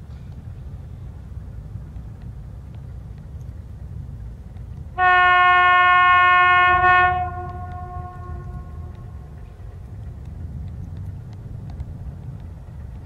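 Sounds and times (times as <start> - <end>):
low steady rumble: 0.0 - 13.0
locomotive horn blast: 5.0 - 9.3.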